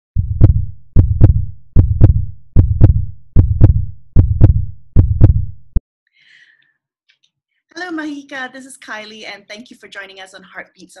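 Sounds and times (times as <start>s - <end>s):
heartbeat thumps: 0.2s - 5.8s.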